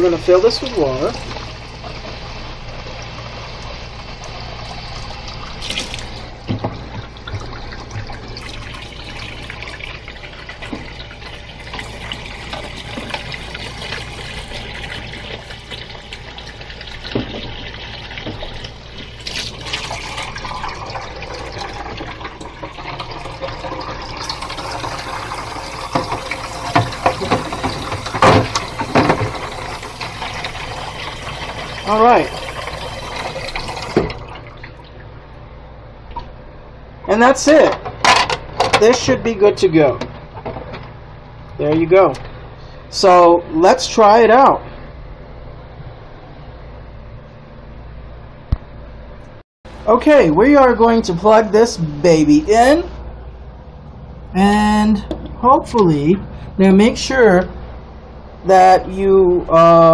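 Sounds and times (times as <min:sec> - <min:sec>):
tap water running: 0:00.0 - 0:35.1.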